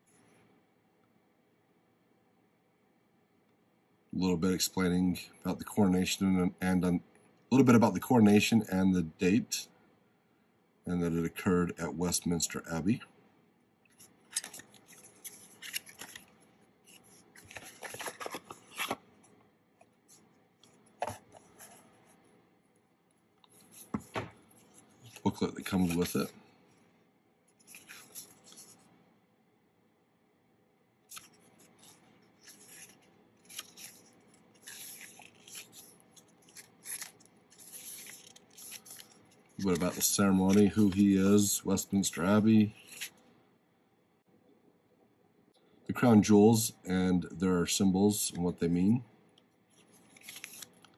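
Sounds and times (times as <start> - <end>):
booklet pages turning: 13.9 - 22.4, 23.4 - 26.9, 27.5 - 28.9, 31.1 - 43.2, 49.7 - 50.9.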